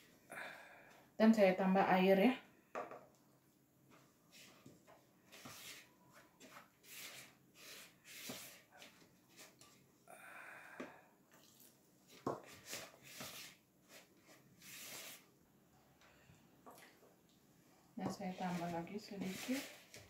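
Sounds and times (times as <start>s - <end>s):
spatula stirring dough in bowl: 3.8s - 9.8s, 11.5s - 15.3s, 18.1s - 20.0s
water pouring into bowl: 11.3s - 11.8s.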